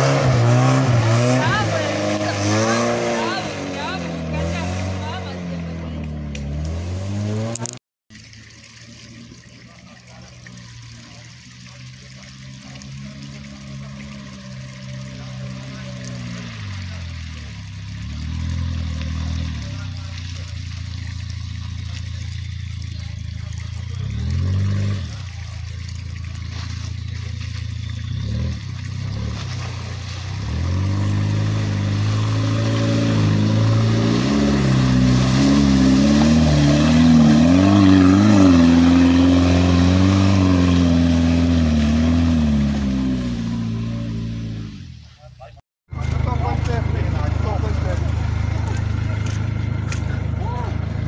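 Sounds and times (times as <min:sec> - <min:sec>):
car engine revving under load: 0:00.0 - 0:07.8, 0:28.1 - 0:45.0.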